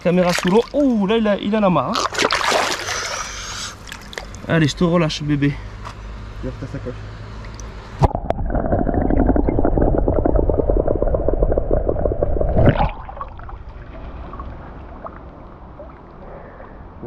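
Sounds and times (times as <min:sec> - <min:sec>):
muffled underwater churning: 0:08.0 - 0:17.0.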